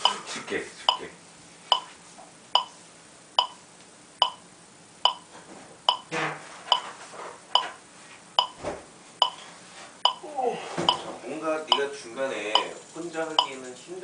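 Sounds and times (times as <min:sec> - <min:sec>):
metronome clicking: 0:03.4 - 0:03.6, 0:04.2 - 0:04.4, 0:12.6 - 0:13.7.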